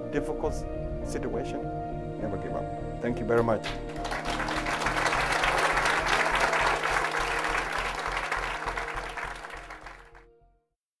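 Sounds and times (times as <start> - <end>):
audience applauding: 3.8 - 10.2.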